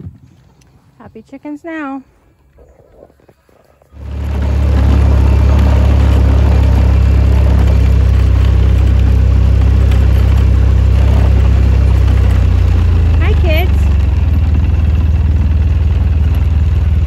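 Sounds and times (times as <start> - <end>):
vehicle engine running: 3.8 - 17.0.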